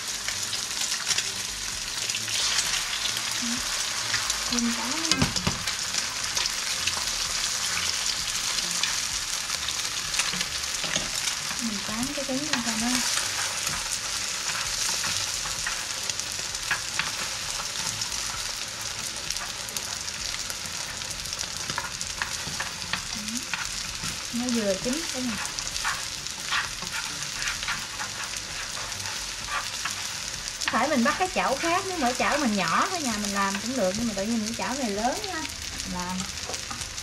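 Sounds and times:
eggs sizzling in oil: 0.0s - 37.0s
stirring clicks and scrapes in pan: 10.0s - 34.9s, 35.6s - 37.0s.

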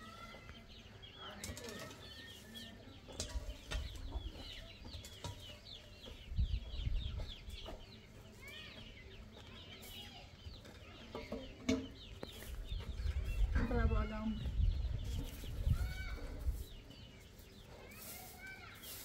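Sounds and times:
chickens clucking: 0.0s - 19.0s
shovel scraping dry dirt: 17.6s - 19.0s.

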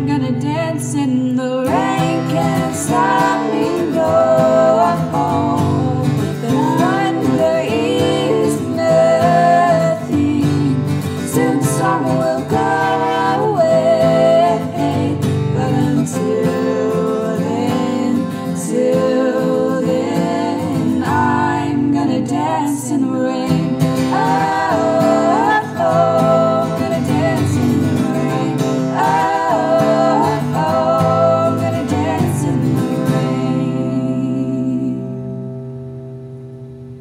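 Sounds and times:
sung harmonies: 0.0s - 37.0s
acoustic guitar strummed: 1.6s - 37.0s.

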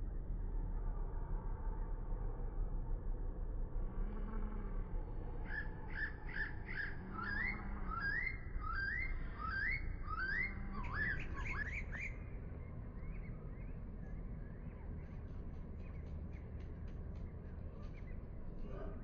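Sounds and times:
low rumble: 0.0s - 19.0s
bird calling rising notes: 5.4s - 13.8s.

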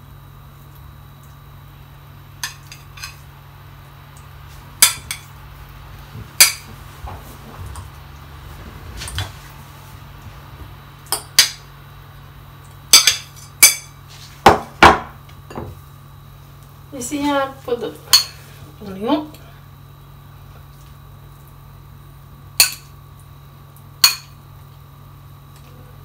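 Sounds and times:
spoon tapping glass bowl: 24.0s - 24.4s.

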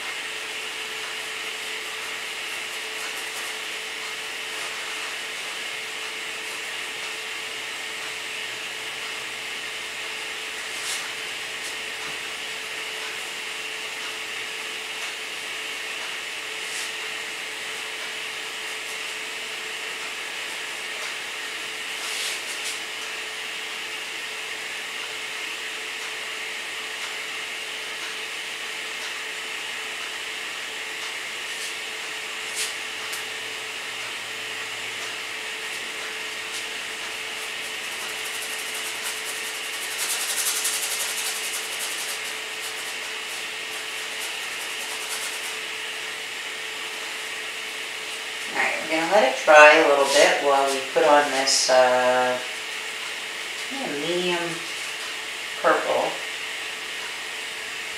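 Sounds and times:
paintbrush rubbing on canvas: 10.6s - 11.8s, 22.0s - 22.8s, 36.5s - 45.9s, 48.4s - 51.4s.

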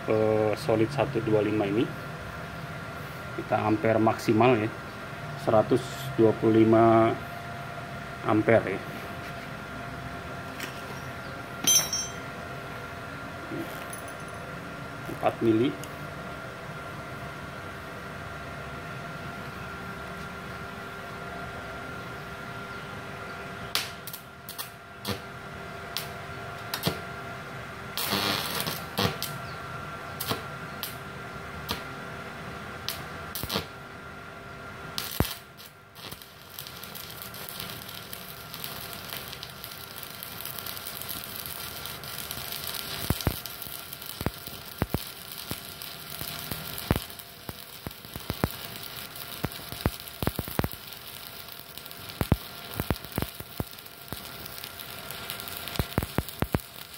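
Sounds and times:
arc welding crackle and sizzle: 0.0s - 14.2s, 14.8s - 18.7s, 19.4s - 56.9s
welding arc sputters: 23.7s - 25.3s, 27.9s - 29.4s, 30.2s - 31.0s, 32.8s - 33.8s, 34.9s - 56.9s.

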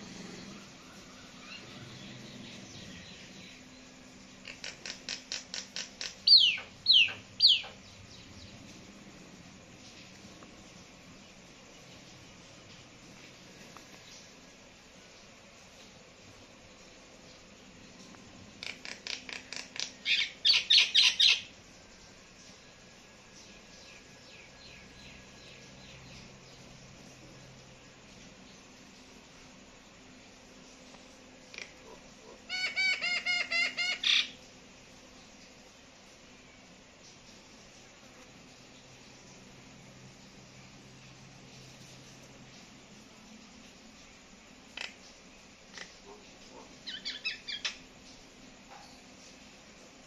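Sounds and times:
myna bird harsh calls: 32.5s - 34.4s.

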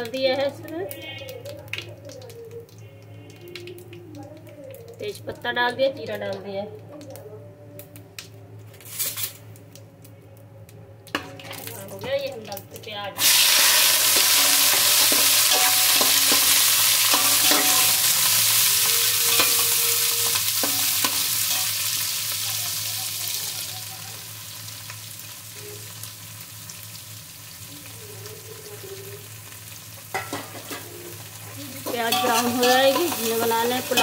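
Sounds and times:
onions sizzling in hot oil: 11.2s - 34.0s
steel spoon scraping pot: 14.0s - 21.7s, 31.8s - 34.0s.

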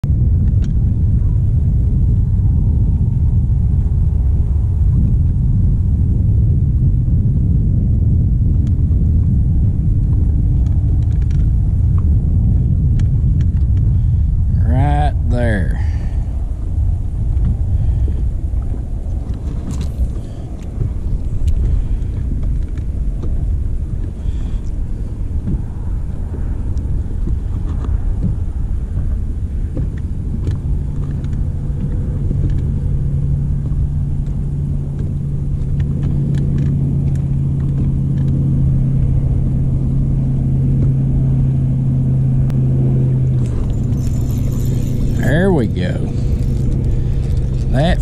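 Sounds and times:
wind rumbling on microphone: 0.0s - 48.0s
electric trolling motor humming: 16.4s - 48.0s.

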